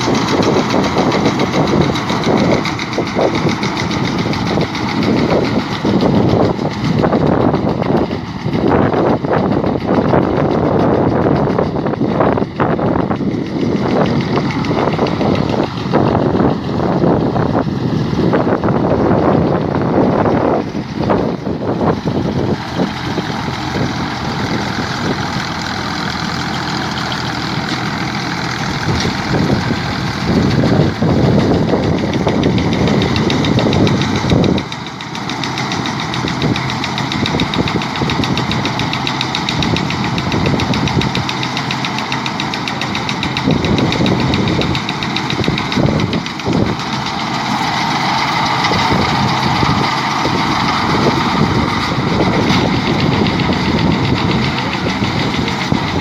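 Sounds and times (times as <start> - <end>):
baler machinery: 0.0 - 56.0
tractor diesel engine: 0.0 - 56.0.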